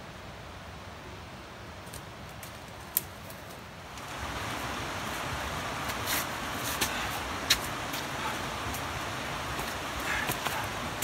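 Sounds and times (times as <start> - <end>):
river water rushing: 3.7 - 11.0
shoes scuffing on rock: 5.8 - 8.8.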